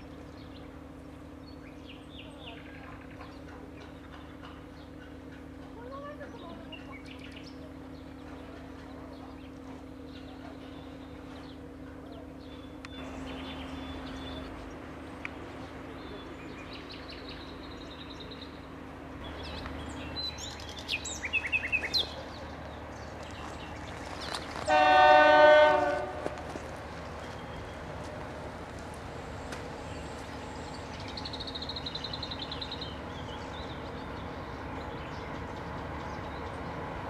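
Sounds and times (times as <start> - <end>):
birds chirping: 0.0 - 37.0
steady low hum: 0.0 - 37.0
locomotive horn blast: 24.6 - 26.6.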